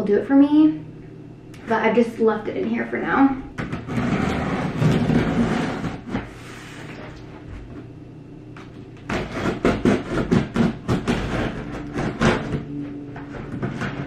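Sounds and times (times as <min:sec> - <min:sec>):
scissors scraping tape and cardboard: 0:03.6 - 0:06.4, 0:09.1 - 0:12.6, 0:13.3 - 0:14.0.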